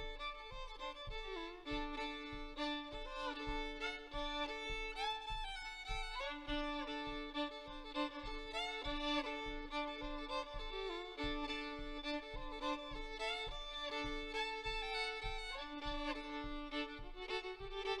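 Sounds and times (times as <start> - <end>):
faint low thumps: 0.0 - 18.0
fiddle melody: 0.0 - 18.0.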